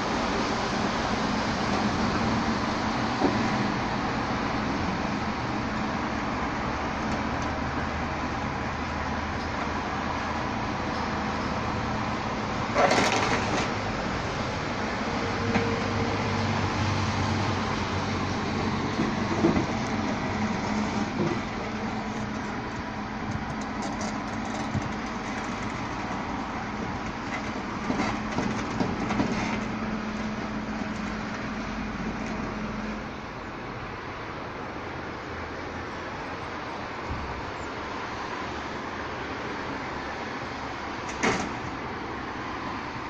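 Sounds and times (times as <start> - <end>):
garbage truck compactor humming: 0.0 - 33.8
truck engine running: 0.0 - 37.6.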